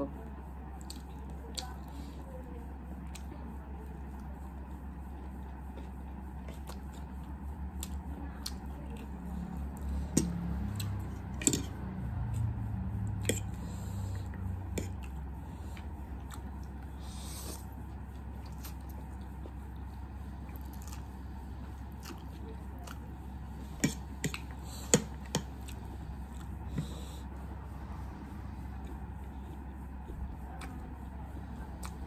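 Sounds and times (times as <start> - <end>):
steady low hum: 0.0 - 32.0
chewing and slurping noodles: 5.1 - 27.4.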